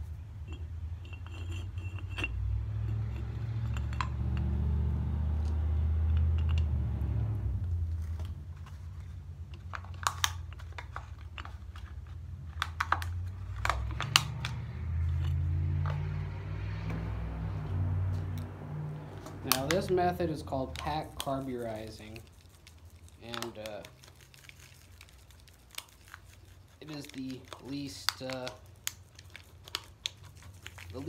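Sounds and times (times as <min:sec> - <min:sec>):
steel pieces clinking in a pipe: 0:00.4 - 0:04.6, 0:06.1 - 0:06.7.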